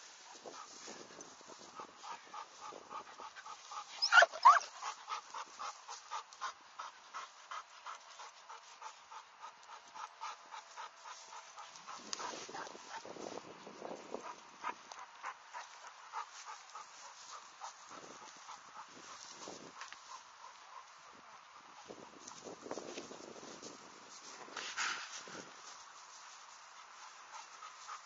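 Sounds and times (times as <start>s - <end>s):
dog panting: 0.3s - 13.4s, 14.1s - 23.3s, 24.8s - 28.0s
dog squealing: 4.0s - 4.7s.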